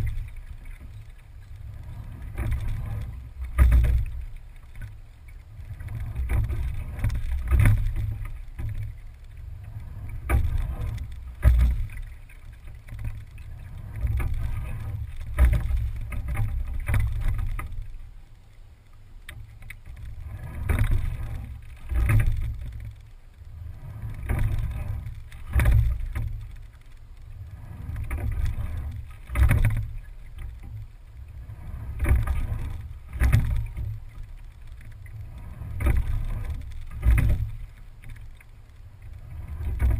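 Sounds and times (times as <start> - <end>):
steady low rumble: 0.0 - 39.9
oars knocking in oarlocks: 2.3 - 4.9.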